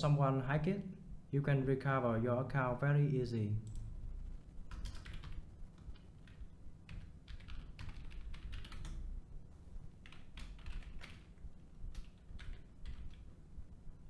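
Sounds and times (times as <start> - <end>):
computer keyboard typing: 3.6 - 9.1, 10.0 - 13.3.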